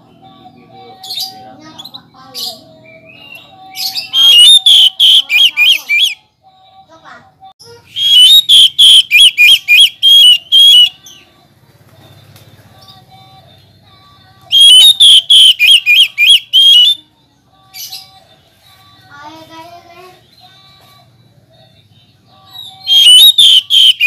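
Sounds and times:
bird whistling rapid notes: 3.8s - 6.2s, 8.0s - 11.0s, 14.5s - 17.0s, 22.9s - 24.0s.

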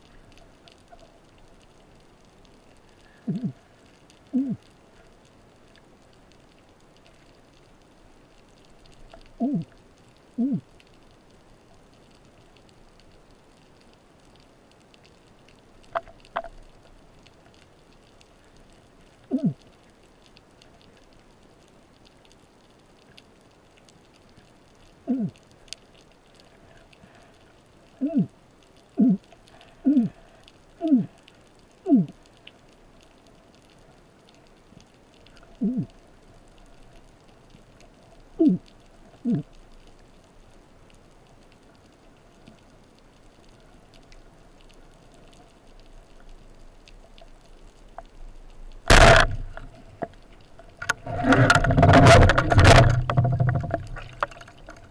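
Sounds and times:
faint underwater crackle: 0.0s - 54.9s
descending underwater vocal moans: 3.1s - 4.8s, 9.3s - 10.8s, 19.2s - 19.7s, 25.0s - 25.5s, 27.9s - 32.3s, 35.5s - 36.0s, 38.4s - 39.6s.

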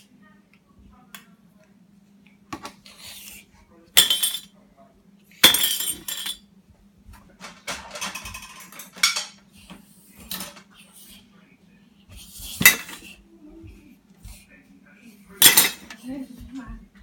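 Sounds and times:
dishes and cutlery clinking: 4.0s - 4.5s, 5.4s - 6.5s, 7.2s - 9.5s, 10.2s - 10.7s, 12.4s - 13.2s, 15.4s - 17.0s.

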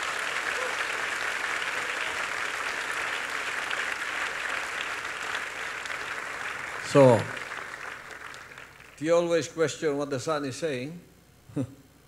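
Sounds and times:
crowd applauding: 0.0s - 9.1s.

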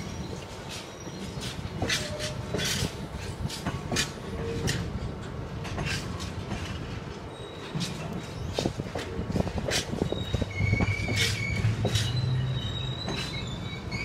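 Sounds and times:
train wagons rumbling: 0.0s - 14.0s
wheels clanking and knocking: 7.6s - 14.0s
wheel squeals: 9.4s - 14.0s.

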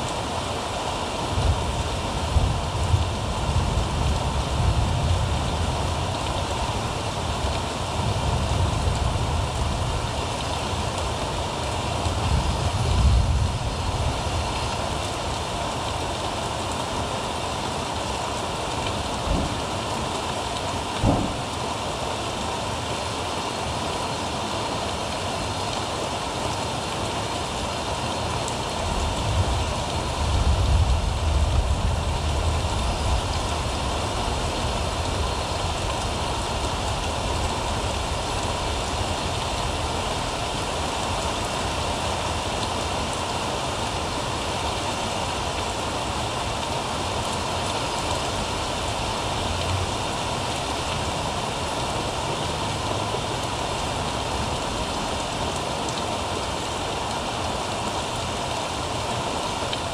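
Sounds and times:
steady rain hiss: 0.0s - 59.9s
short knock: 21.0s - 21.4s.

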